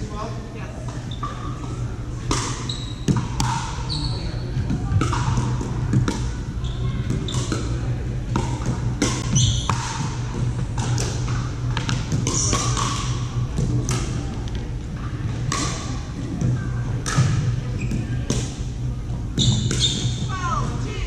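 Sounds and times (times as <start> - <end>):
steady low hum: 0.0 - 21.0
ball bouncing on wooden floor: 2.3 - 6.2
sneaker squeaks on floor: 2.5 - 3.2, 3.8 - 4.7, 6.6 - 7.6, 9.3 - 9.7, 17.8 - 18.2, 19.4 - 20.3
paddles hitting plastic ball: 8.3 - 14.6, 15.5 - 17.5.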